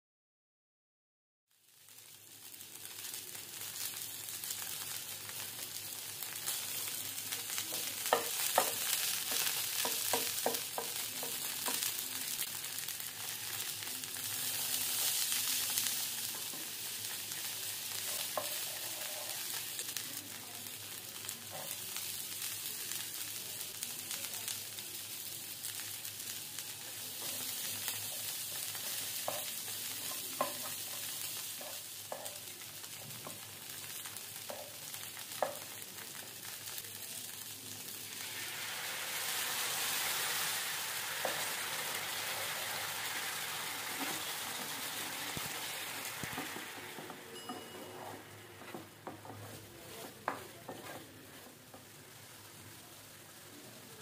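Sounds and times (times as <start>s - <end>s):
butter and oil sizzling in pan: 1.5s - 54.0s
wooden spatula stirring: 46.4s - 52.2s.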